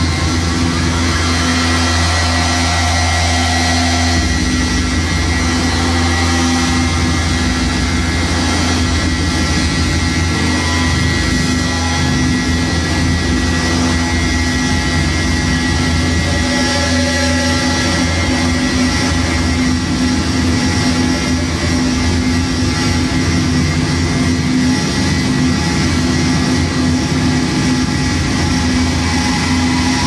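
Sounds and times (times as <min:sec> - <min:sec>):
deep steady drone: 0:00.0 - 0:30.0
harsh electronic noise music: 0:00.0 - 0:30.0.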